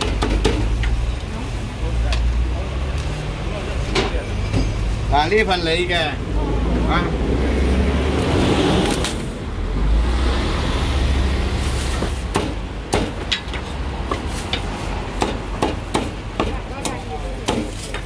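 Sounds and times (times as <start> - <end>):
cleaver chopping on wooden block: 15.2 - 18.0.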